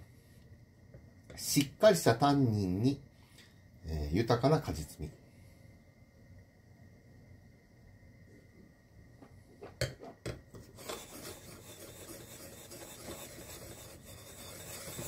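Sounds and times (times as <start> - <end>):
glass scraping on countertop: 9.6 - 15.0.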